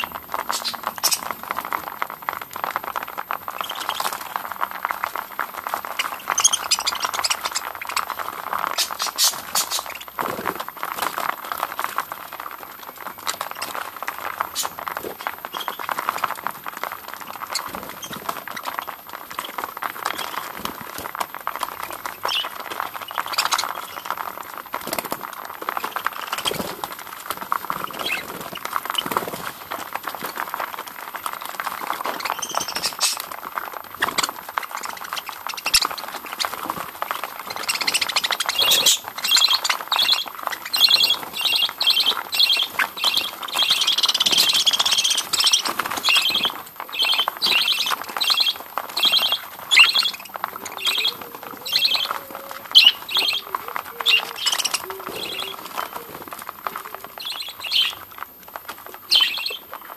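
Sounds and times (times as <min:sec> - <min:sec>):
budgerigars chattering: 0:00.0 - 0:01.3, 0:05.9 - 0:10.2, 0:32.2 - 0:33.3, 0:37.4 - 0:58.0.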